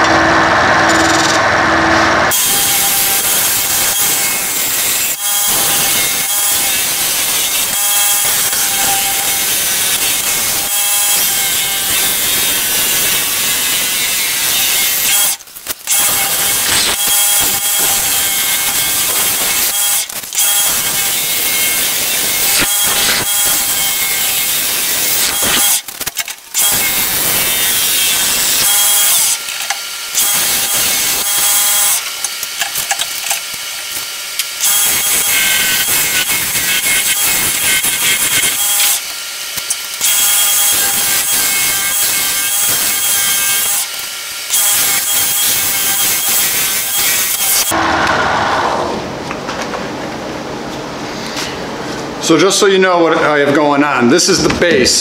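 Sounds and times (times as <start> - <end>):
gouge scraping spinning wood: 0.0 - 3.1
lathe motor whine: 0.0 - 6.4.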